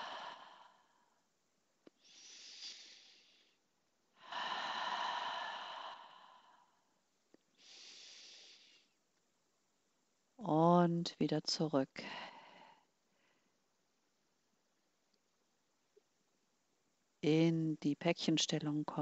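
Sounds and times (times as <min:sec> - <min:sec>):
woman breathing deeply: 0:00.0 - 0:01.3, 0:01.9 - 0:09.0, 0:12.0 - 0:13.5.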